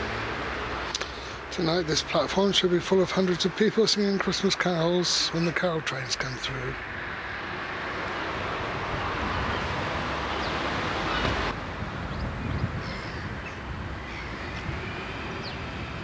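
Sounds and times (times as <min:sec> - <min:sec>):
wind rumbling on microphone: 0:07.1 - 0:16.0.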